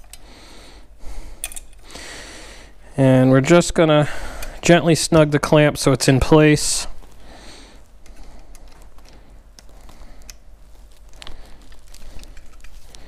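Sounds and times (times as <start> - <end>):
small metal clicks: 1.4 - 1.8, 12.0 - 13.0.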